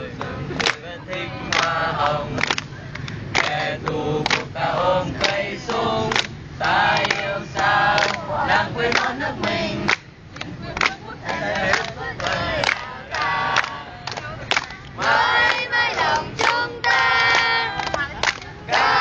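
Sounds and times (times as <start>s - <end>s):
group singing unaccompanied: 0.0s - 19.0s
hands clapping in time: 0.2s - 4.5s, 6.1s - 6.4s, 7.9s - 8.2s, 9.9s - 15.6s, 17.2s - 18.6s.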